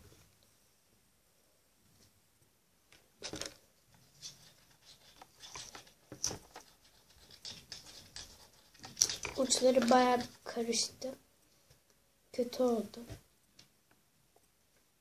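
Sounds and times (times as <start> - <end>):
light rubbing: 4.0 - 10.4.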